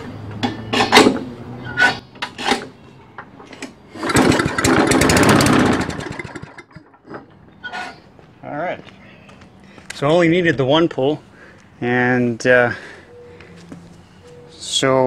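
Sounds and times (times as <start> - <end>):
mower engine starting and running: 0.7 - 8.0.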